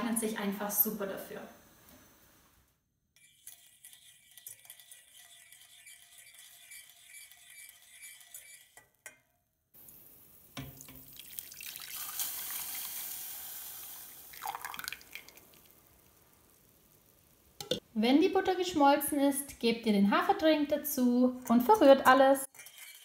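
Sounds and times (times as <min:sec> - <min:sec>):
milk pouring into hot pan: 0:09.8 - 0:16.4
butter sizzling in a saucepan: 0:09.8 - 0:17.6.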